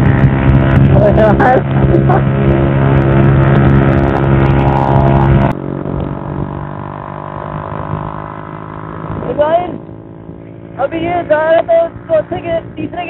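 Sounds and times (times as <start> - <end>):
motorcycle engine at high revs: 0.0 - 13.0
wind rush: 0.0 - 13.0.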